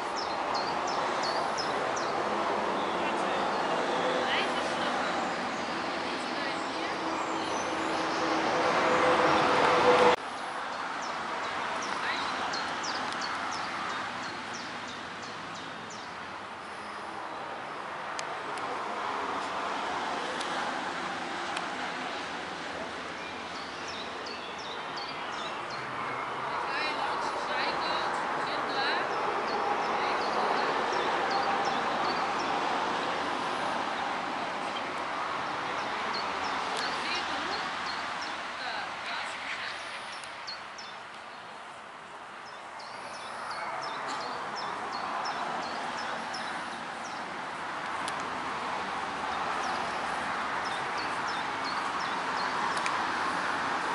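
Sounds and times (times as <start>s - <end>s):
small birds chirping: 0.0s - 2.2s, 10.4s - 17.9s, 35.7s - 41.6s, 42.3s - 48.3s, 49.2s - 53.9s.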